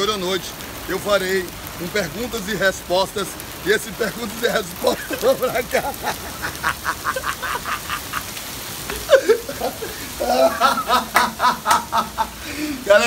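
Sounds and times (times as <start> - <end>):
heavy rain falling: 0.0 - 13.0
man laughing hard: 4.4 - 12.8.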